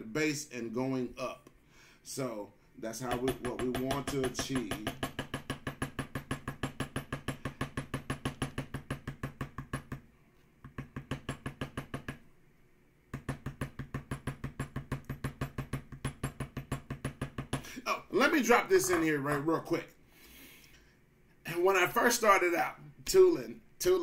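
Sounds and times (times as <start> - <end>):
mallet tapping a stamp: 3.0 - 10.0, 10.6 - 12.2, 13.1 - 17.6.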